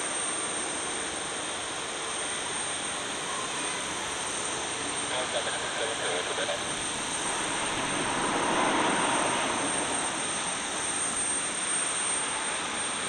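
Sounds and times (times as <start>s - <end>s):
jet engines whining at taxi power: 0.0s - 13.0s.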